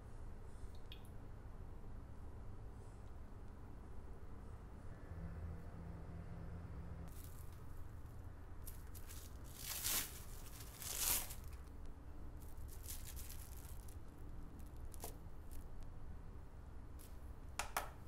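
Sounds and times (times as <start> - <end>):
low steady hum: 0.0 - 18.0
cling film crinkling: 8.6 - 15.8.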